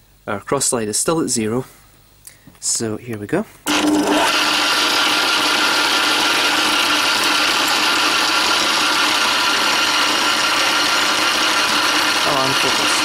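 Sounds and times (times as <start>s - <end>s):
lathe motor whine: 3.7s - 13.0s.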